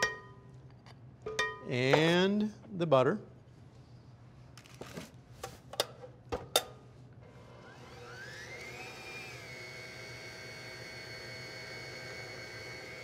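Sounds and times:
stand mixer motor whining: 0:07.2 - 0:13.0.

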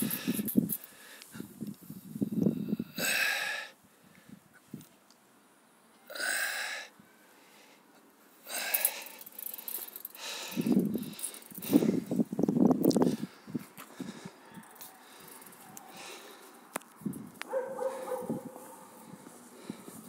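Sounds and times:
person breathing: 0:00.0 - 0:04.4, 0:06.1 - 0:12.3, 0:13.0 - 0:16.7, 0:17.7 - 0:20.0.

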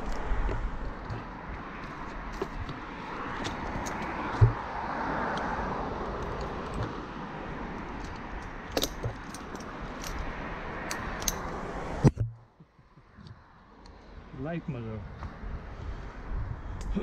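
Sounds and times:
steady rushing noise: 0:00.0 - 0:12.2
metal climbing hardware jangling: 0:01.8 - 0:04.4, 0:06.0 - 0:06.9, 0:07.7 - 0:11.6.

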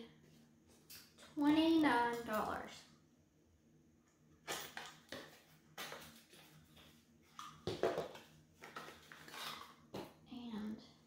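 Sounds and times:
packaging rustling and scraping: 0:08.0 - 0:09.8.

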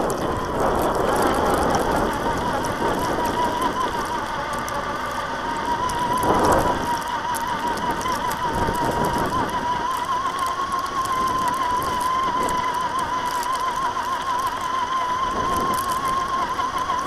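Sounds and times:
faint mechanical clicks: 0:00.0 - 0:17.0
gritty rustle of snow: 0:00.0 - 0:17.0
high-pitched electric motor whine: 0:00.0 - 0:17.0.

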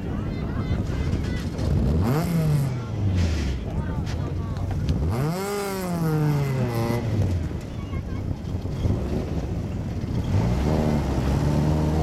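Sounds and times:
wind on microphone: 0:00.0 - 0:12.0
rally car engine revving: 0:01.7 - 0:03.6, 0:05.0 - 0:07.5, 0:10.2 - 0:12.0.

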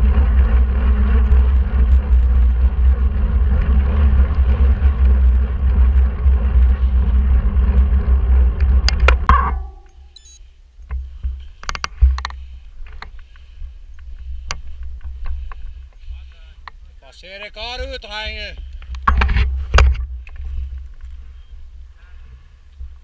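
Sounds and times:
wind rumbling on microphone: 0:00.0 - 0:09.7, 0:17.6 - 0:23.0
bike tyre noise on road: 0:00.0 - 0:10.2, 0:10.8 - 0:23.0.

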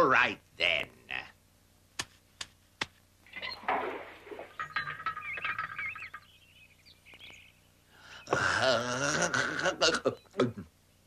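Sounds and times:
birds twittering: 0:03.3 - 0:11.0.

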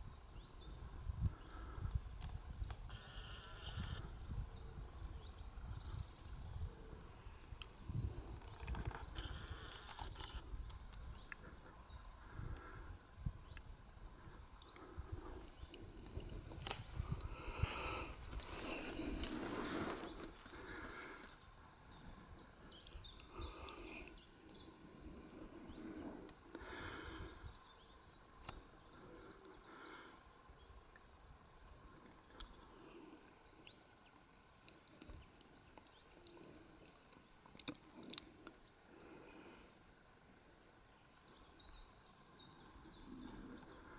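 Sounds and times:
small clicks and ticks: 0:08.4 - 0:11.5.

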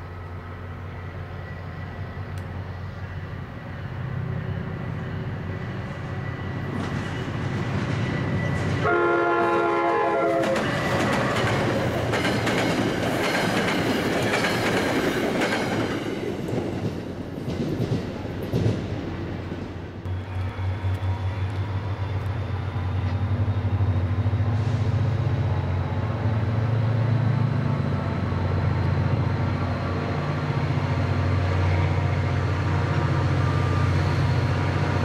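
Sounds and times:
train rumble: 0:00.0 - 0:35.0
train wheel clatter: 0:05.6 - 0:23.8
locomotive horn: 0:08.8 - 0:10.8.

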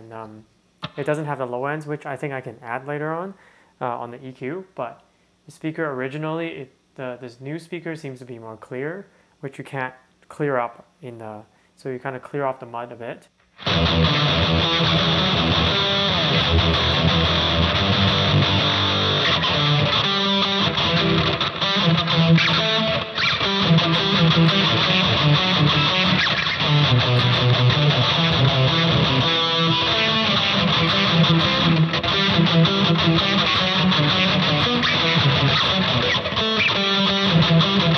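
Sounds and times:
electric guitar through amplifier: 0:13.6 - 0:37.9.

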